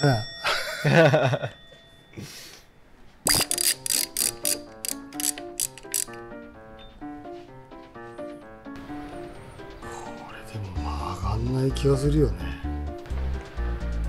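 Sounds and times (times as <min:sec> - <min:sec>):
ratchet wrench clicking: 0:03.3 - 0:06.2
plucked background melody: 0:03.3 - 0:14.0.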